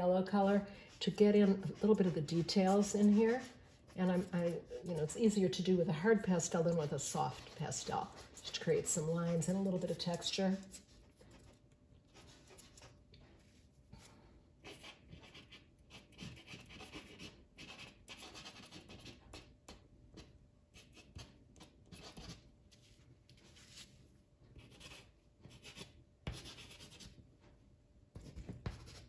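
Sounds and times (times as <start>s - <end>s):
pastel scratching on paper: 0.5s - 5.6s, 6.3s - 11.2s, 14.6s - 19.5s.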